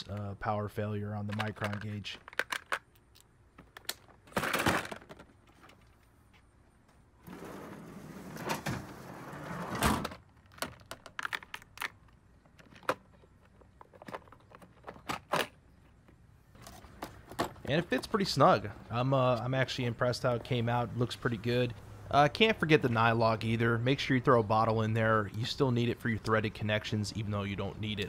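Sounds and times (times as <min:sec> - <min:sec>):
plastic cases clicking and rattling: 0:01.2 - 0:06.0, 0:10.0 - 0:18.1.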